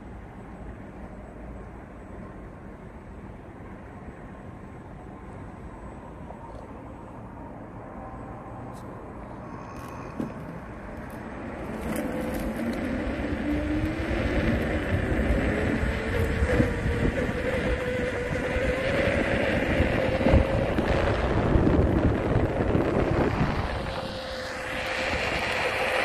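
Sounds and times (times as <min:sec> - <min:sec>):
vehicle engine rumble: 0:00.0 - 0:26.0
motor whine rising in pitch: 0:09.3 - 0:26.0.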